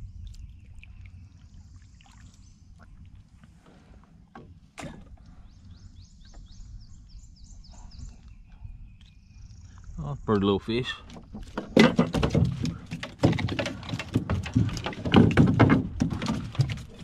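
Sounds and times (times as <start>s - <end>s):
low rumble of movement in kayak: 0.0s - 17.0s
bird chirping: 5.2s - 10.7s
knock against hull: 11.4s - 17.0s.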